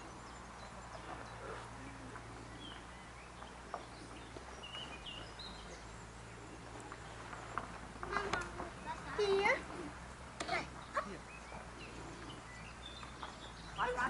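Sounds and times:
bird chirps: 0.0s - 14.0s.

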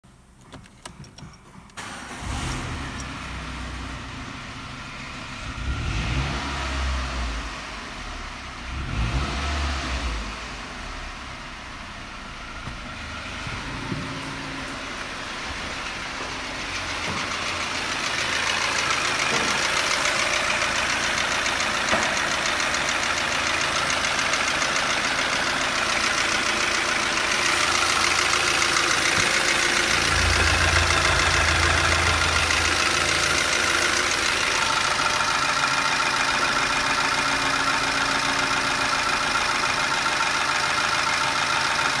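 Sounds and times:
car engine idling: 1.8s - 6.2s, 10.3s - 42.0s.

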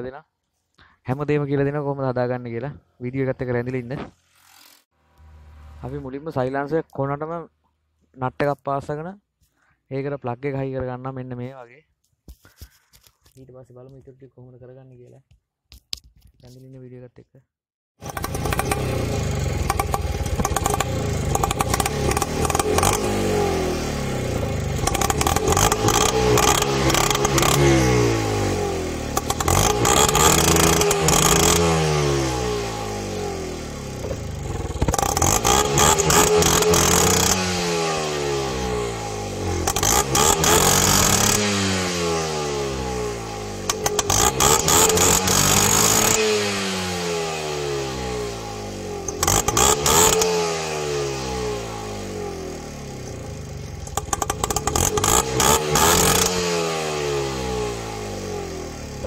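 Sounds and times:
rickshaw engine revving: 18.0s - 59.0s.

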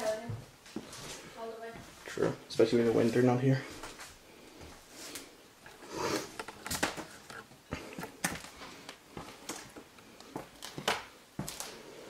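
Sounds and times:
footsteps on wooden floorboards: 0.0s - 2.2s, 6.4s - 11.7s.

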